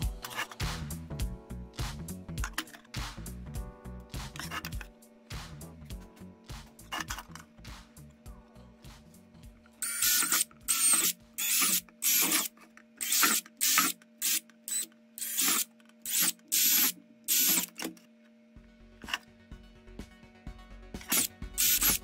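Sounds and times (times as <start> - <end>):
cordless drill boring plastic: 9.8 - 17.9, 21.0 - 22.0.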